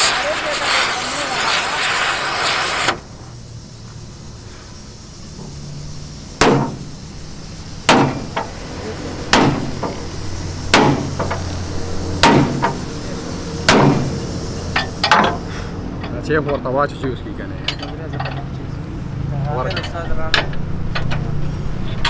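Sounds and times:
sledgehammer striking metal: 6.4s - 6.9s, 7.9s - 8.5s, 9.3s - 10.0s, 10.7s - 11.4s, 12.2s - 12.8s, 13.6s - 14.2s.

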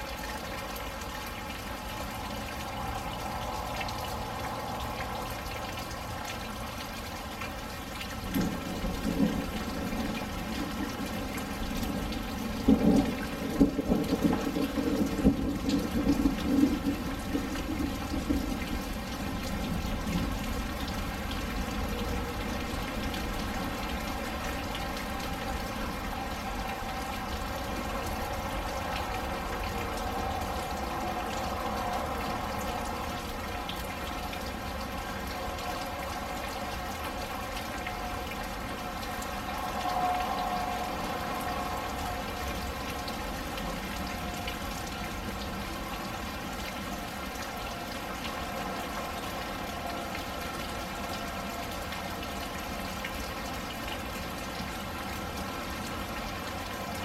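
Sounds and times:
steady rain: 0.0s - 57.0s
thunder rumbling: 8.2s - 33.4s.

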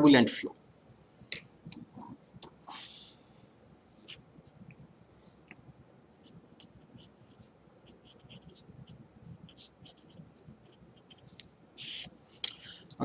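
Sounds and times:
pen scratching on paper: 6.2s - 12.1s.

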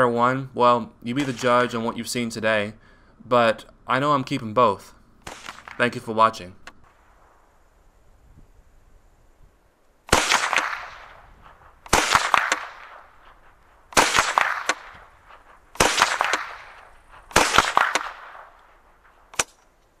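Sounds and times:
pistol shots: 1.2s - 1.8s, 5.2s - 6.0s, 10.1s - 19.8s.

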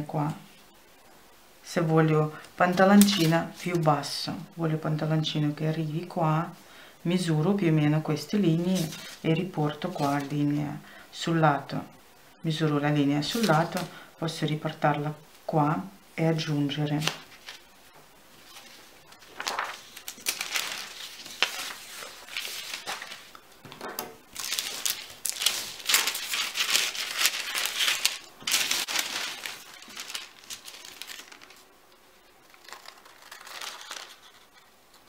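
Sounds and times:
tracing paper rustling: 2.6s - 3.8s, 8.5s - 10.6s, 13.2s - 13.9s, 16.9s - 17.7s, 18.4s - 23.4s, 24.3s - 35.0s
scissors snipping paper: 32.5s - 34.7s.

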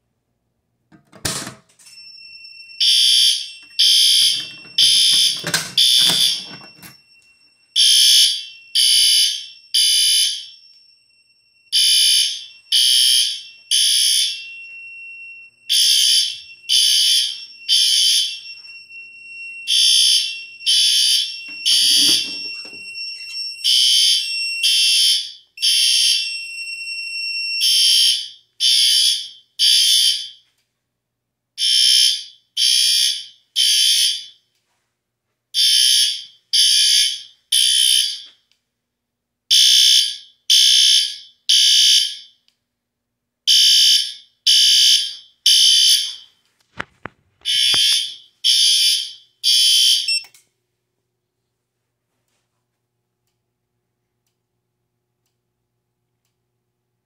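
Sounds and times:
fire alarm horn blasts: 2.0s - 30.5s, 31.6s - 34.4s, 35.5s - 38.4s, 39.5s - 42.4s, 43.5s - 46.4s, 47.4s - 50.4s.

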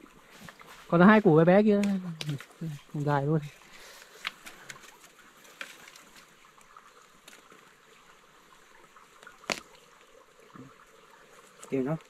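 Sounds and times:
stream trickling: 0.0s - 12.0s.

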